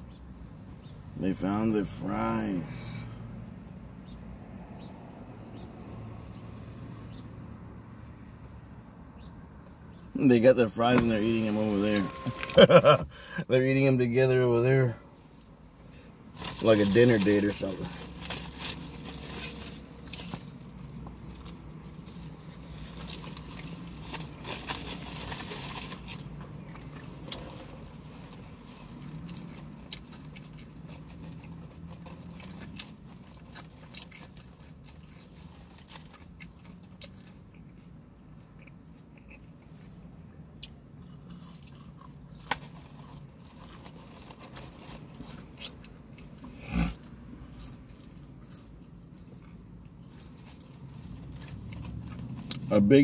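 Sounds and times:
small clicks and crunches: 10.8s - 12.8s, 16.4s - 39.8s, 40.6s - 52.7s
person chewing food: 18.2s - 52.7s.

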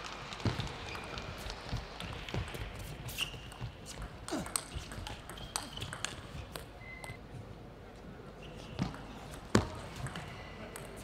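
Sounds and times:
shoes squeaking on floor: 2.8s - 7.2s
ping pong ball clicking: 3.5s - 7.2s.

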